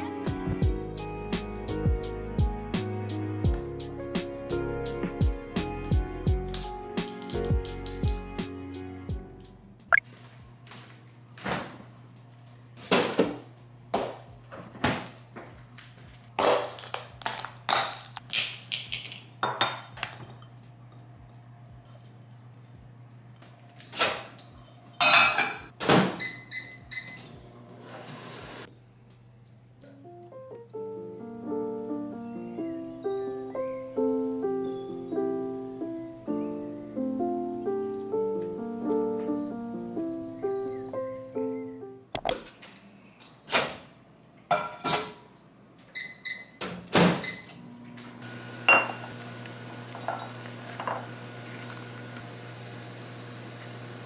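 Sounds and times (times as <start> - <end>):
microwave running with low hum: 9.6 - 30.2, 45.2 - 54.0.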